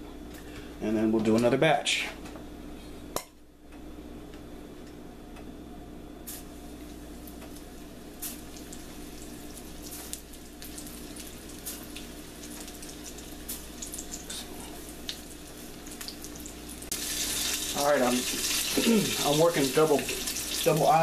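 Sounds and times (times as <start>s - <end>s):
food deep-frying in oil: 6.8s - 21.0s.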